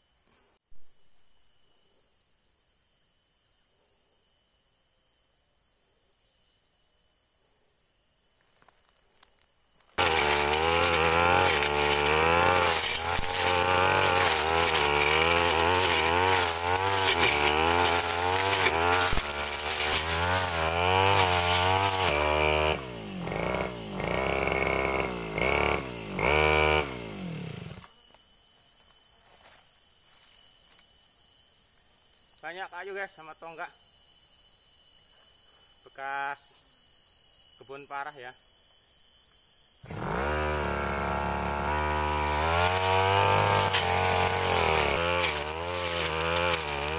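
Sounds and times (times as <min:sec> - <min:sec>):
insect chorus: 0:00.0 - 0:46.9
brush cutter engine revving: 0:10.0 - 0:27.9, 0:39.8 - 0:46.9.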